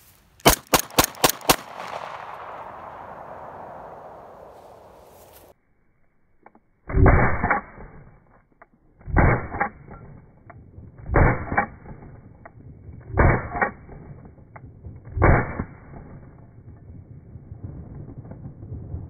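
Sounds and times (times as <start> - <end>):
pistol shots: 0.4 - 5.0
gunshot echo: 0.4 - 5.5, 13.2 - 14.1, 15.1 - 16.2.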